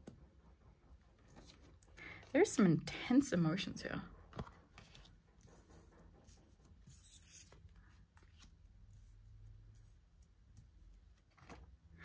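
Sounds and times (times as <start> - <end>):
cards rustling and tapping: 10.4 - 11.8.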